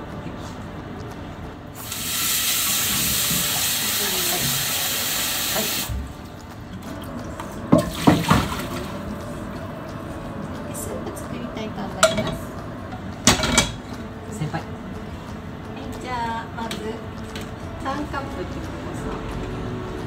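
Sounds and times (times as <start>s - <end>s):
tap running into sink: 1.8s - 6.1s, 7.4s - 8.9s.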